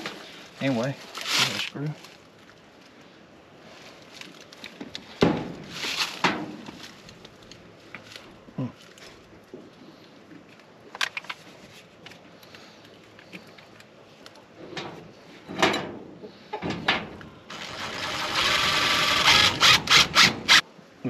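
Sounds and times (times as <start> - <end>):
cordless drill whirring: 17.5 - 20.6.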